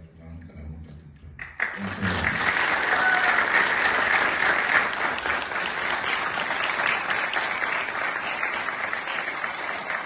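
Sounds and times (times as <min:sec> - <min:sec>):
audience applauding: 0:01.4 - 0:10.0.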